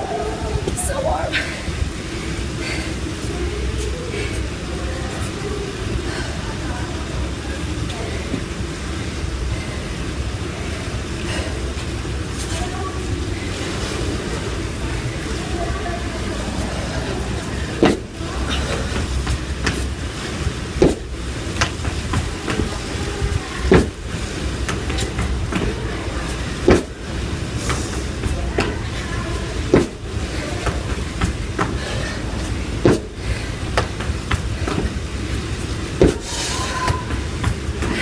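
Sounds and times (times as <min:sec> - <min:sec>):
low background rumble: 0:00.0 - 0:38.0
feet landing on tiles: 0:17.8 - 0:20.0, 0:20.8 - 0:22.9, 0:23.7 - 0:24.0, 0:26.6 - 0:38.0.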